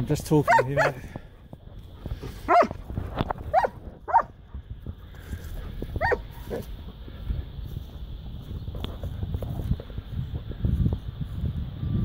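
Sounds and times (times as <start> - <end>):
dog barking: 0.4 - 1.0, 2.5 - 2.8, 3.5 - 4.3, 6.0 - 6.6.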